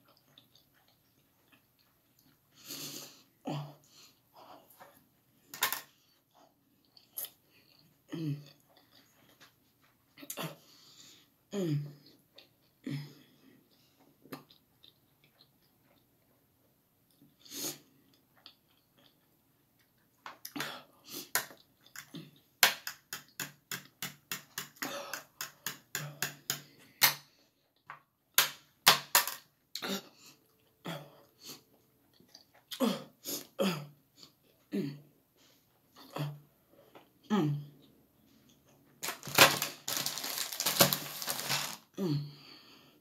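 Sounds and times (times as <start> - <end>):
man chewing noodles: 0.0 - 5.4, 6.0 - 11.4, 13.4 - 22.6, 29.6 - 34.7.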